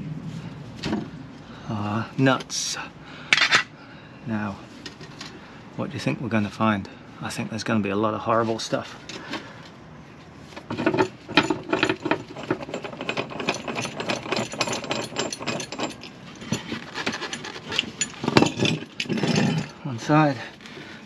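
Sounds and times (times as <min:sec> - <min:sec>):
metal parts clicking and rattling: 0:10.6 - 0:19.8.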